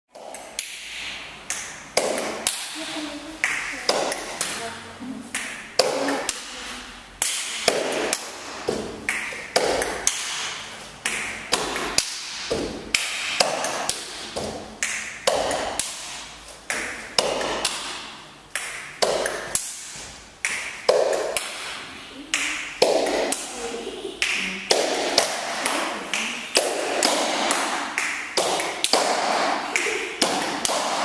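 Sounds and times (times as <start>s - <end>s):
hands clapping snapping and slapping: 0.2s - 2.8s, 7.2s - 21.8s, 24.2s - 31.0s.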